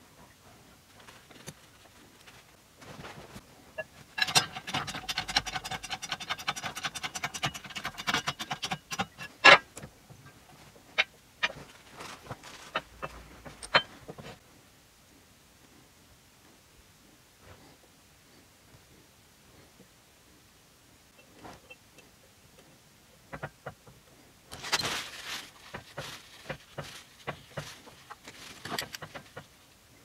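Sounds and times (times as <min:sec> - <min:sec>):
rapid ringing metallic ticks: 0:04.2 - 0:09.3.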